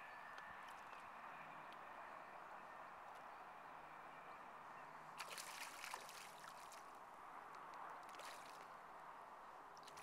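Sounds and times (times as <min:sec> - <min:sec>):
water splashing and trickling: 0:05.2 - 0:07.0, 0:07.8 - 0:10.0.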